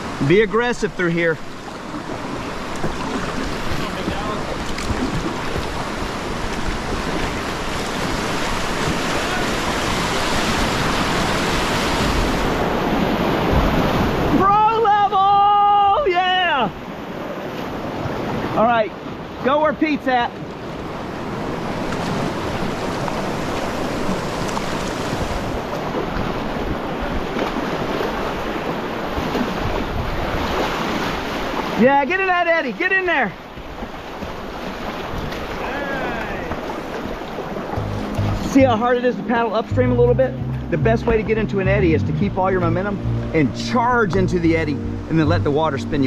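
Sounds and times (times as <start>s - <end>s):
whitewater rapids rushing: 0.0s - 46.0s
wind noise on microphone: 29.1s - 31.2s.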